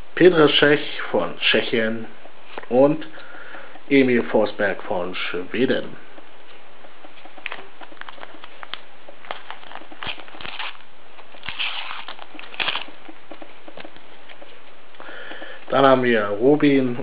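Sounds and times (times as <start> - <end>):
faint steady hiss: 0.0 - 12.8, 14.0 - 17.0
paper packet crinkling and tearing: 7.4 - 13.1.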